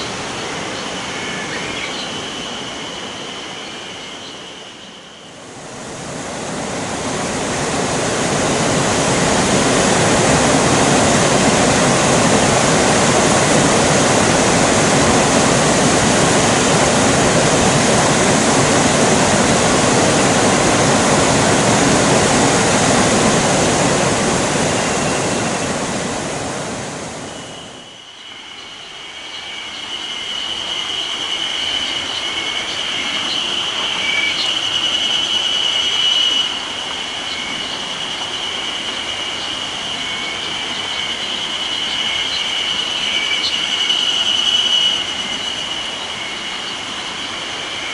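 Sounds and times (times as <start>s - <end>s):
cicadas singing: 0.0s - 26.2s, 27.1s - 47.9s
water rushing over weir: 5.3s - 27.8s.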